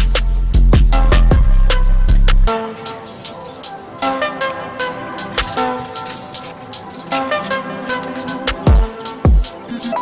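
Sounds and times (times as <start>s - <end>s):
heavy bass and drums: 0.0s - 2.5s
hi-hat ticks: 0.0s - 3.7s, 5.2s - 10.0s
electronic music: 0.0s - 10.0s.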